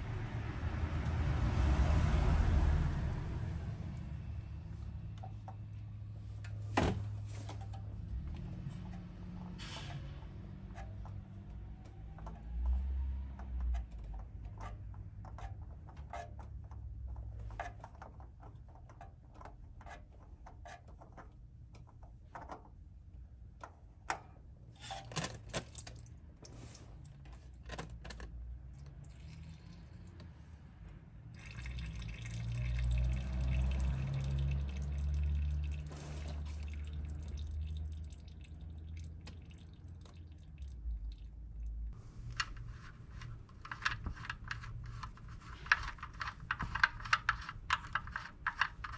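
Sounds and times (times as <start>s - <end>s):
oil filter clicks and scrapes: 4.8s - 22.9s, 31.3s - 48.9s
oil pouring and dripping: 28.7s - 30.4s, 31.3s - 48.9s.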